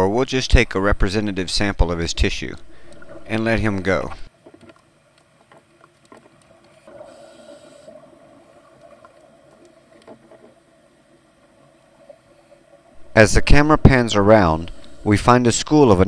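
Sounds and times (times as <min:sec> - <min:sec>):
low underwater hum: 0:00.0 - 0:16.0
small clicks: 0:02.4 - 0:06.9.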